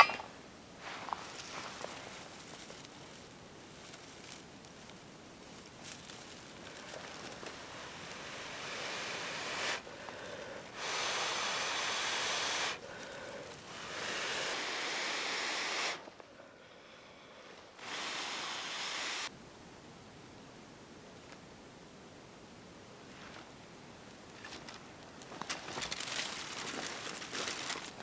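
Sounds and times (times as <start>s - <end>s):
dry grass rustling: 0.8s - 10.9s, 12.5s - 14.6s, 23.1s - 28.0s
person blowing into tinder: 7.9s - 16.1s, 17.8s - 19.3s.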